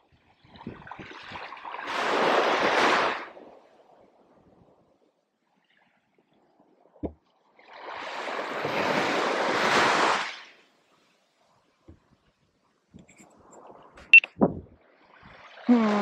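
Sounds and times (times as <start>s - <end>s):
wave breaking on sand: 1.8s - 3.4s, 7.9s - 10.5s.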